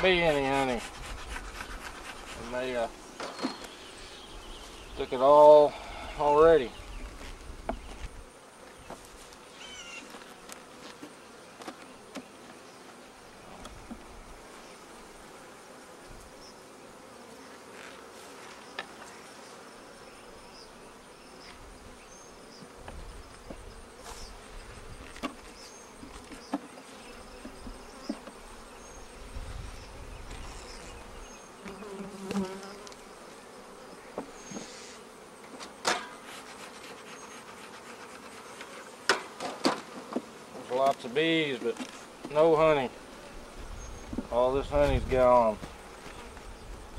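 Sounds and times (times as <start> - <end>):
honey bees buzzing: 0.0 - 46.9.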